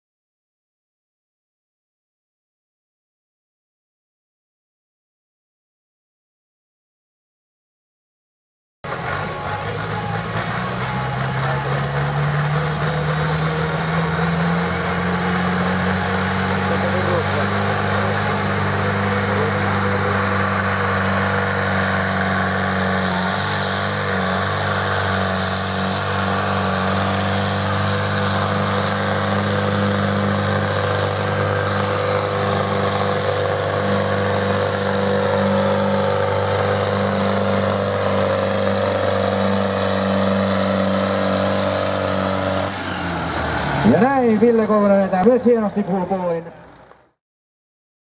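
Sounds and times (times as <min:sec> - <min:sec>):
tractor engine under full load: 0:08.8 - 0:47.2.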